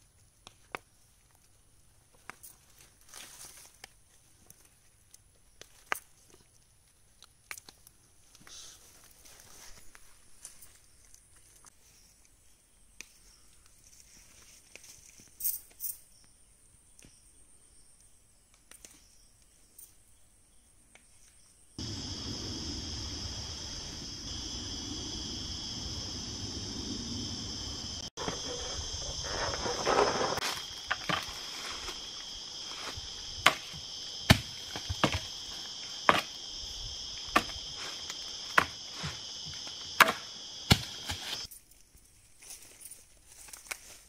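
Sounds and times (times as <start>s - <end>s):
high insect drone: 21.8s - 41.5s.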